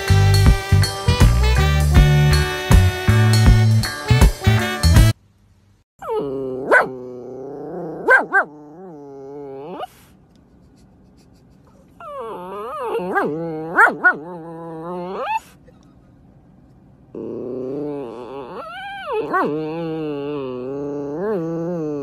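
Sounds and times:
dog whining: 6.0 - 10.1, 11.6 - 16.1, 17.1 - 22.0.

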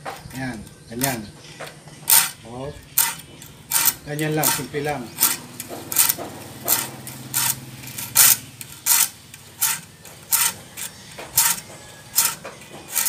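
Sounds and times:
file stroking saw teeth: 3.0 - 13.0.

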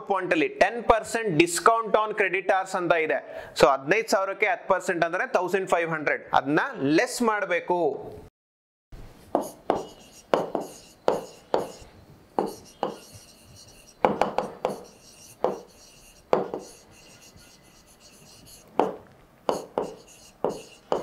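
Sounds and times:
stylus tapping on tablet: 9.4 - 11.8, 12.4 - 15.7, 18.8 - 21.0.

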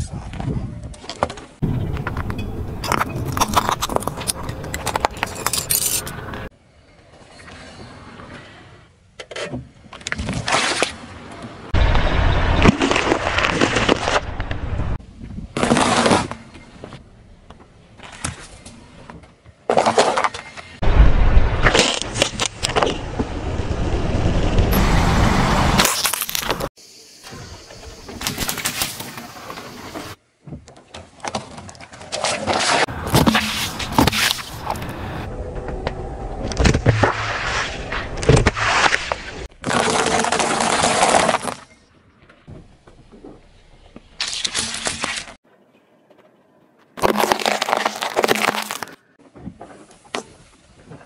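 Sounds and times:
car tyre crushing small objects: 1.6 - 6.5, 21.6 - 23.0, 25.8 - 26.7, 32.2 - 35.3, 38.2 - 45.4, 47.0 - 49.1
tyre rumbling with sharp cracks: 19.7 - 23.4, 32.1 - 35.9, 36.5 - 41.7, 47.0 - 49.1
packet crunching and crackling: 47.0 - 49.0.

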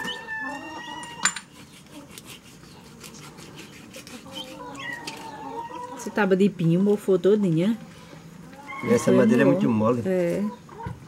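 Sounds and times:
knife scraping fish: 1.5 - 4.8.

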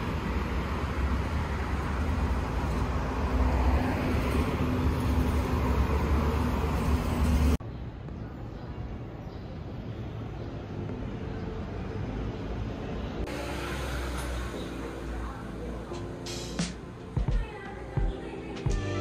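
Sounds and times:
road traffic rumble: 0.0 - 19.0.

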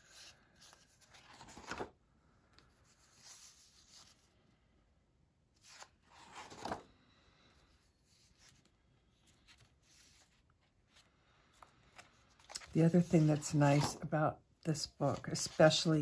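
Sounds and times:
paper page turning: 0.0 - 1.9, 5.6 - 6.9, 8.2 - 14.0
hand rustling on paper: 11.9 - 14.0.

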